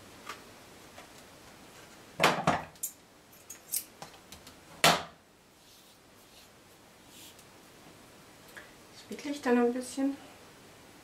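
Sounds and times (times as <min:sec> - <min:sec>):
tools clattering on table: 0:02.3 - 0:04.0.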